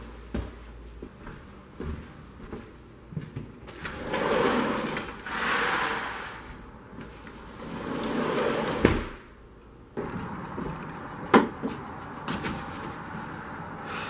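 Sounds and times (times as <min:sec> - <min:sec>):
sliding glass door scraping: 0:03.7 - 0:09.2, 0:10.0 - 0:14.0.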